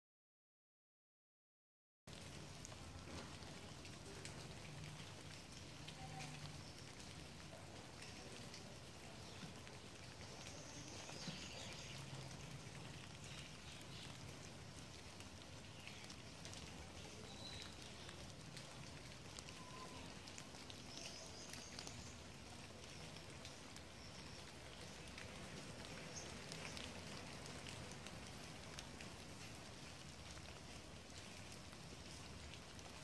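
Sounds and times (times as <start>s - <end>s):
soft outdoor hiss: 2.1s - 33.0s
faint high chirps: 19.5s - 20.2s.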